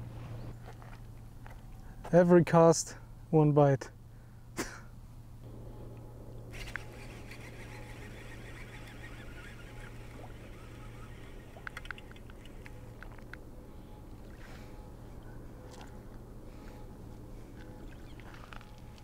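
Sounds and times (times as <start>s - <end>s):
steady low hum: 0.0s - 19.0s
sharp clicks: 10.6s - 13.4s.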